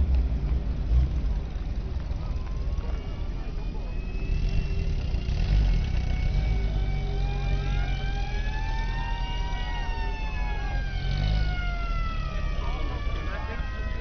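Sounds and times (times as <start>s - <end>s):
jeep engines rumbling: 0.0s - 14.0s
siren wailing: 2.2s - 5.3s, 5.9s - 14.0s.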